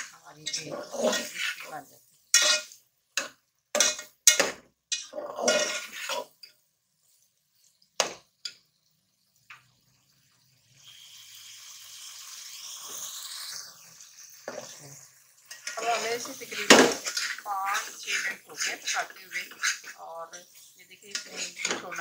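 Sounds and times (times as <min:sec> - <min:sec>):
metal spatula scraping a pot: 0:00.0 - 0:06.5, 0:14.4 - 0:22.0
food sizzling: 0:00.0 - 0:22.0.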